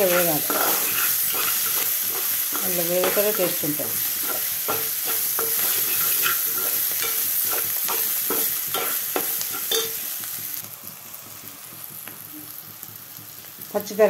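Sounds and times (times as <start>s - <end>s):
metal spoon scraping a pan: 0.0s - 10.1s
food sizzling in hot oil: 0.0s - 14.0s.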